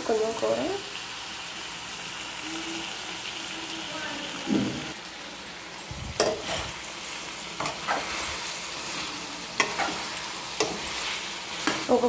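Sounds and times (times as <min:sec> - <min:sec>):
food sizzling in a frying pan: 0:00.0 - 0:12.0
spoon scraping and knocking pan: 0:05.8 - 0:06.8, 0:07.6 - 0:12.0.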